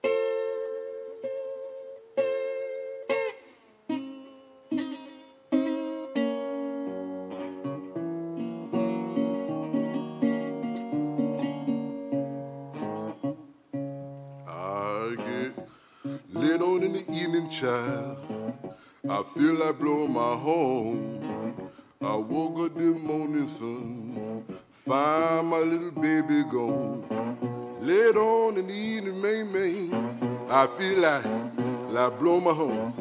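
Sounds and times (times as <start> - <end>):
fingerpicked resonator guitar: 0.0 - 33.0.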